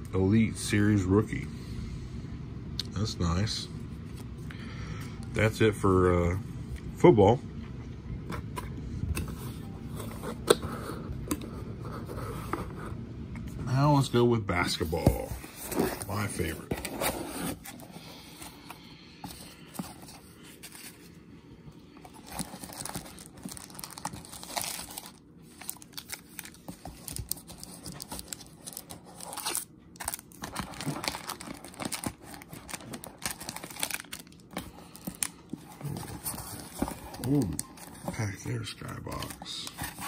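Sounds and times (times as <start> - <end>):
foil wrappers crinkling: 22.1 - 40.0.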